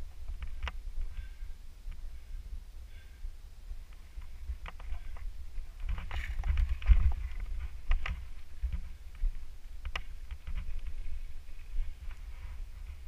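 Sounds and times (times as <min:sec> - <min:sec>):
wind and ride vibration rumble: 0:00.0 - 0:13.0
bike clicks and rattles: 0:03.9 - 0:12.2.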